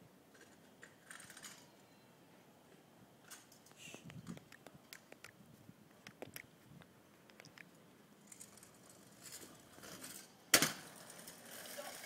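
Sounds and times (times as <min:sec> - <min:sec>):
scooter wheels rolling rattle: 0:00.3 - 0:01.7, 0:08.2 - 0:12.0.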